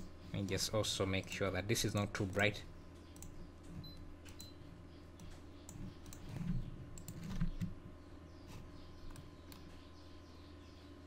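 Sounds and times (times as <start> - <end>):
low steady hum: 0.0 - 11.0
computer mouse clicks: 5.2 - 7.7.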